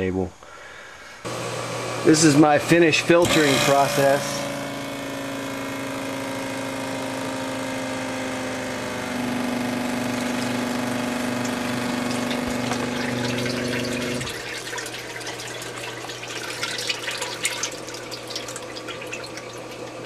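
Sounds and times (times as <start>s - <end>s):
electric pump motor hum: 1.2s - 20.0s
liquid trickling and dripping: 11.3s - 20.0s.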